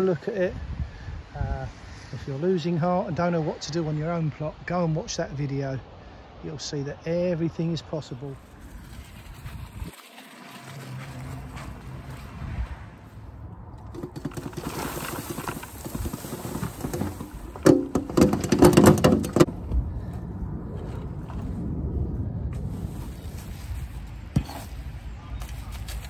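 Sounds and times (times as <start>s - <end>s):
wheelbarrow rolling on wood chips: 8.2s - 19.6s, 22.5s - 26.0s
rake scraping wood chips: 8.3s - 12.8s, 13.8s - 19.5s, 22.6s - 26.0s
wood chips clattering out: 8.4s - 12.0s, 13.8s - 19.5s.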